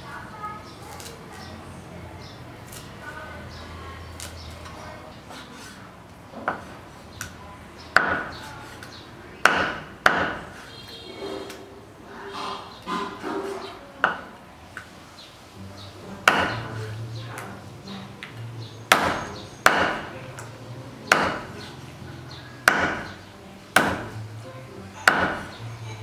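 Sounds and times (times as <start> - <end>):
cleaver chopping on wooden board: 6.4 - 6.7, 8.0 - 8.4, 9.4 - 10.7, 16.2 - 16.8, 18.9 - 20.1, 21.1 - 21.7, 22.6 - 23.2, 23.8 - 24.2, 25.0 - 25.6.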